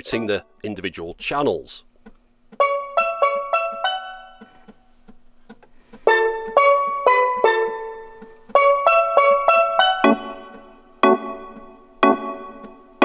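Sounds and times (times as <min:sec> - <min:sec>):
keyboard-like synth notes: 0:02.6 - 0:04.5, 0:06.1 - 0:13.0
synth chords: 0:06.1 - 0:13.0.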